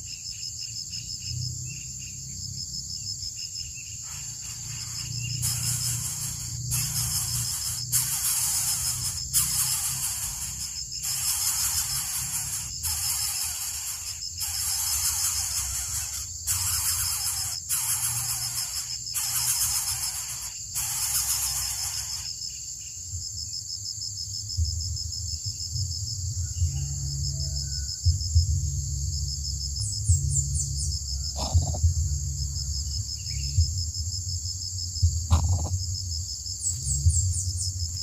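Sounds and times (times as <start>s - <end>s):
insect high pulsing trill: 0.0s - 38.0s
insect buzzing in bursts: 4.0s - 22.7s.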